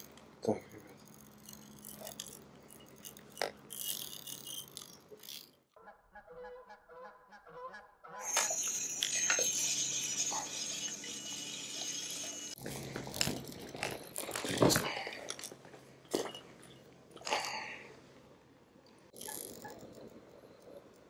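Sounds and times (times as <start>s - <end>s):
geese honking: 5.8s - 8.4s.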